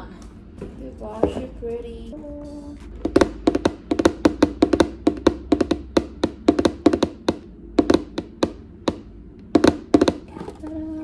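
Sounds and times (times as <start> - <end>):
fingers tapping cardboard box: 3.0 - 9.0.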